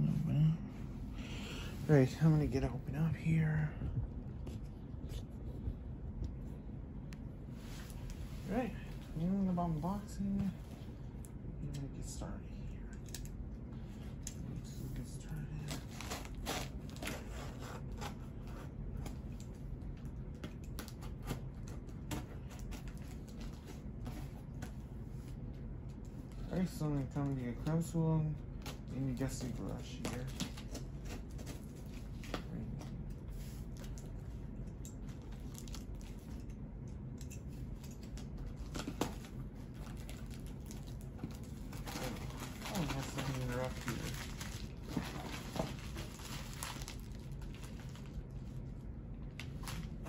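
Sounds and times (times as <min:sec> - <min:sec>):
steady low hum: 0:00.0 - 0:50.0
packaging crinkling: 0:35.0 - 0:36.6, 0:37.7 - 0:48.6.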